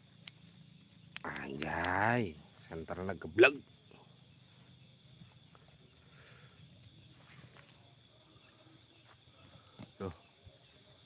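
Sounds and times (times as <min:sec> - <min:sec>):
small ticks: 0:00.0 - 0:02.7.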